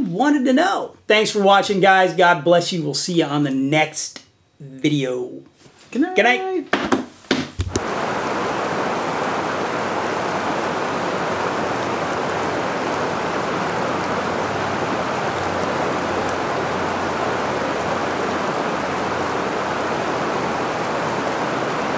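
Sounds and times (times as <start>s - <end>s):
mountain river rushing over rock: 7.7s - 21.9s.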